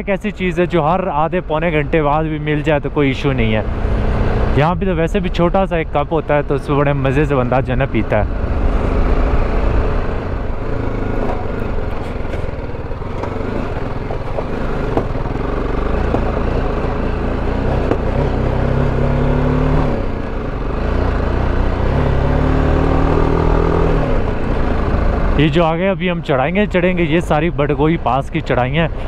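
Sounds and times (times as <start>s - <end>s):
motorcycle engine running: 8.3s - 25.9s.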